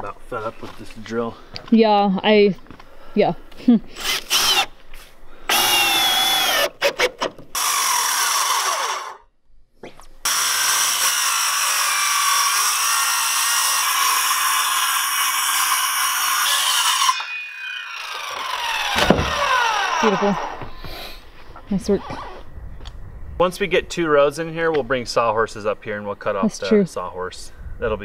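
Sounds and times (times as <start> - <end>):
circular saw cutting: 4.0 - 4.7, 5.5 - 9.2, 10.2 - 20.8
drill running: 4.0 - 4.7, 5.5 - 9.2, 10.2 - 21.0.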